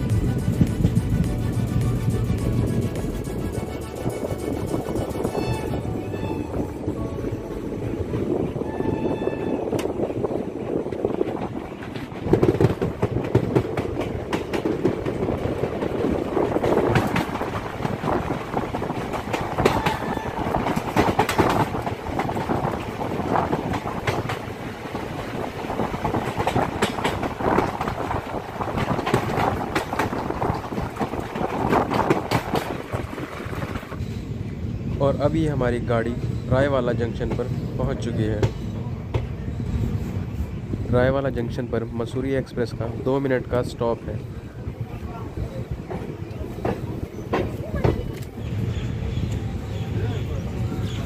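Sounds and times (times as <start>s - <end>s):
train rumble and rush: 0.0s - 51.0s
wheels clacking over track: 10.9s - 34.0s.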